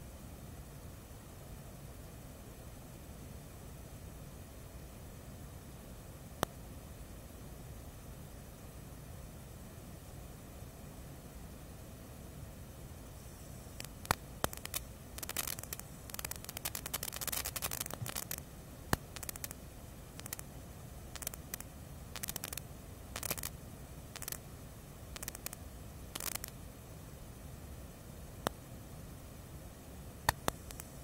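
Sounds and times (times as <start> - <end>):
sharp clicks: 13.8 - 19.6, 20.2 - 20.5, 21.1 - 22.6, 23.2 - 23.6, 24.2 - 24.4, 25.2 - 26.6, 30.3 - 31.0.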